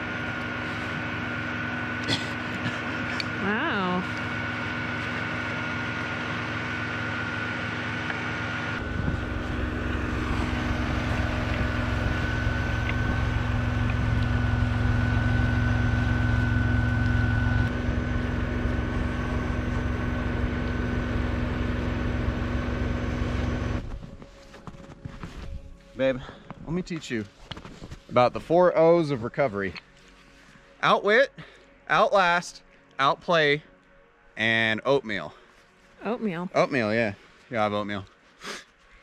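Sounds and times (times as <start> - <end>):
electric winch whining: 0.0 - 24.0
deep rumble: 6.2 - 24.4.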